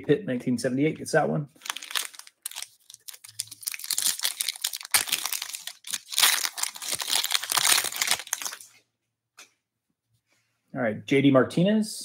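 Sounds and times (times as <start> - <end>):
foil wrapper crinkling and tearing: 1.6 - 8.7.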